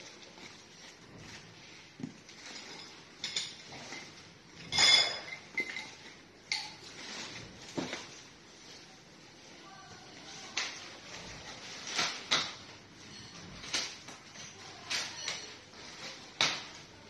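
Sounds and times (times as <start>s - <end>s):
plastic packaging rustling: 5.5s - 17.0s.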